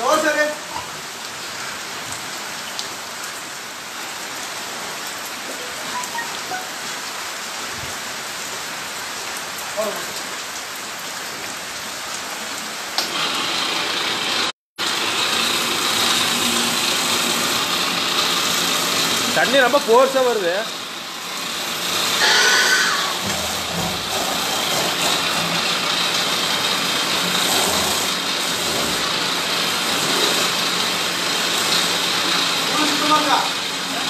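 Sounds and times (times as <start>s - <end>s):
heavy rain falling: 0.0s - 34.0s
hose jet of water spraying: 13.0s - 34.0s.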